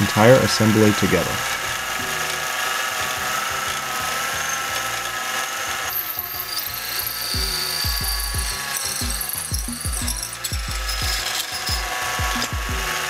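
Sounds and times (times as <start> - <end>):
lathe drilling machine whine: 0.0 - 13.0
background music with low beat: 7.0 - 13.0.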